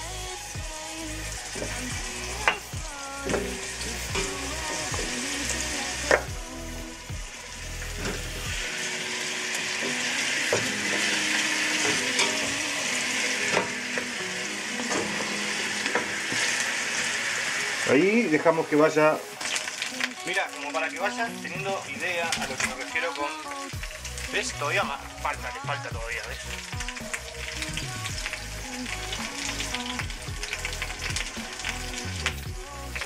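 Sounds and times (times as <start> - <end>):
bones sizzling in hot oil: 0.0 - 33.0.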